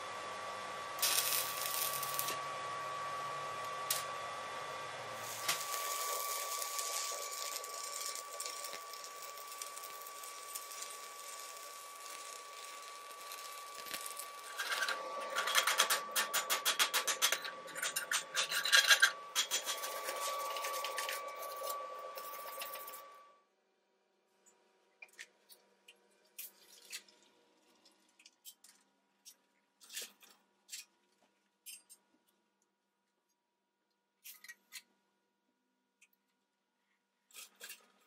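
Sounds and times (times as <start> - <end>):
thin steady whine: 0.0 - 23.5
welding arc hissing and crackling: 1.0 - 2.5, 5.2 - 23.1.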